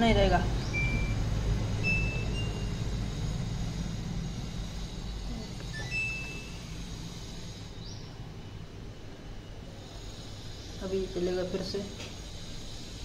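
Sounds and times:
washing machine humming: 0.0s - 13.0s
electronic button beeps: 1.8s - 2.7s.

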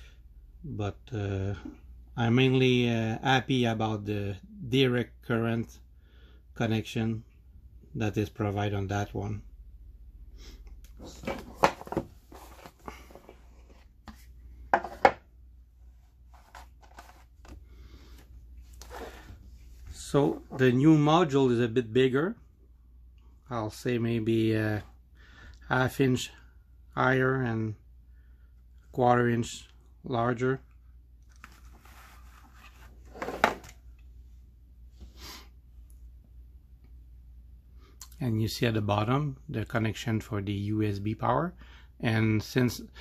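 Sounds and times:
cardboard and paper rustling: 11.0s - 15.1s, 15.9s - 17.6s, 31.3s - 33.7s
cardboard scrapes: 18.8s - 19.4s, 31.6s - 33.7s.

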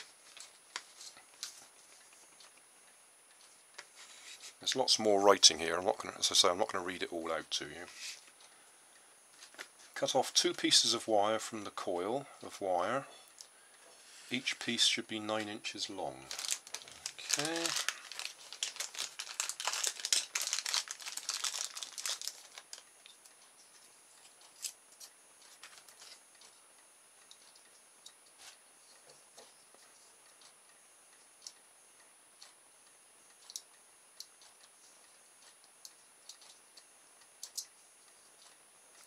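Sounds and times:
faint clicks and taps: 3.3s - 4.6s, 33.3s - 39.0s
plastic packaging crinkling: 16.1s - 23.2s, 25.5s - 26.2s.

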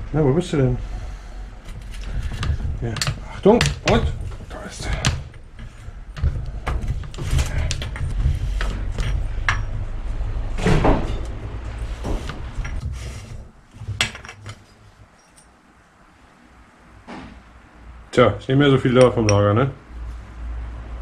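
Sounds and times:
metal clinks and scrapes: 1.6s - 10.1s, 11.1s - 15.7s.

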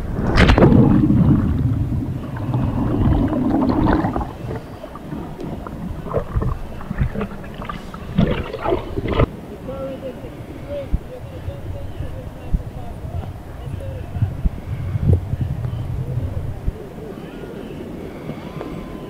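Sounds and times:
muffled rushing water: 0.0s - 19.0s
person splashing into river: 0.2s - 4.6s
person swimming splashing: 0.3s - 9.3s.

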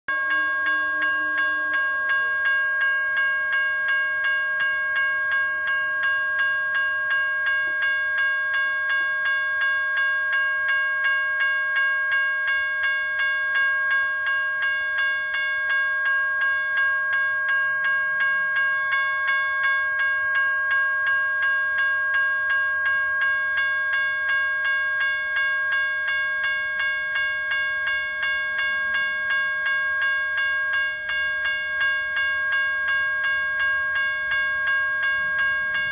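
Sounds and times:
railroad crossing bell ringing: 0.1s - 35.9s.

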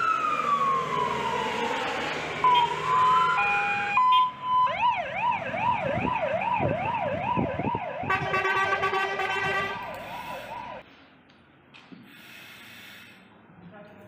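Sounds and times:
fire engine siren: 0.0s - 10.9s
steady siren tone: 0.0s - 10.9s.

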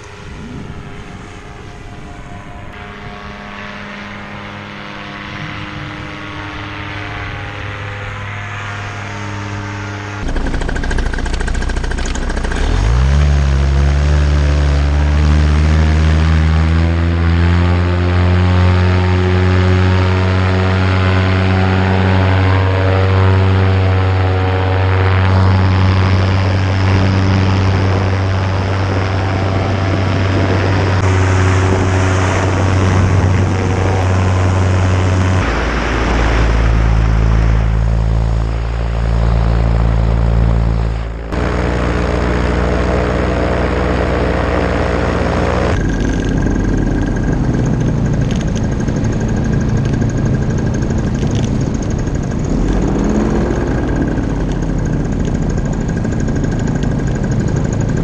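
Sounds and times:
paramotor engine and propeller: 0.0s - 58.0s.

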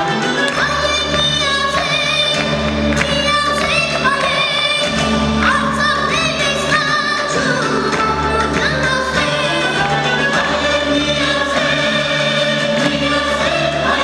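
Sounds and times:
boy singing into a microphone: 0.0s - 10.2s
choir singing: 0.0s - 14.0s
instrumental backing music: 0.0s - 14.0s.

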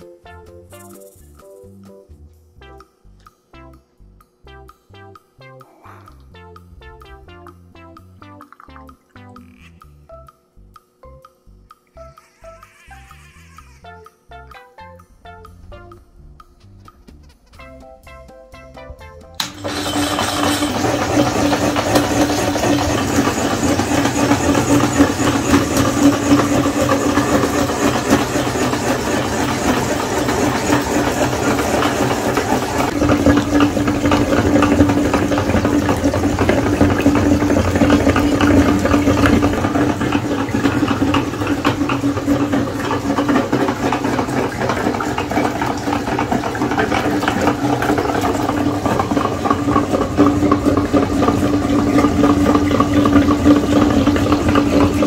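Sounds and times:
meat grinder humming: 19.4s - 55.0s.

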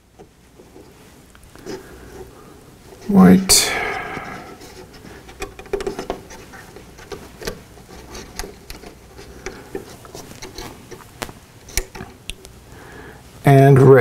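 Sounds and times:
fingers handling wires clicking: 4.1s - 12.6s.

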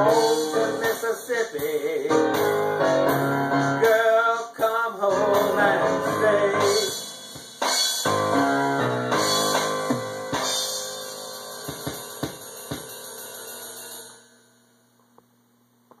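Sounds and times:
drum hits: 5.1s - 13.1s
cymbals ringing: 9.1s - 14.7s.

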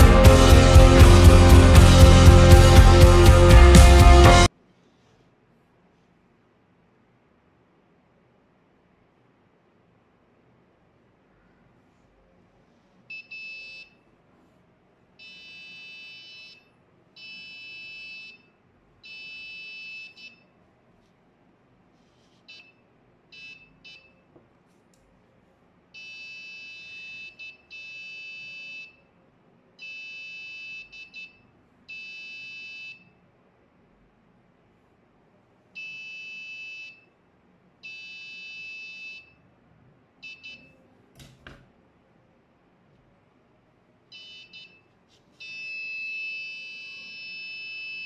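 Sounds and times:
buzzer beeping: 35.8s - 37.0s, 37.8s - 39.3s, 40.2s - 40.7s, 44.2s - 44.8s, 45.4s - 48.0s.

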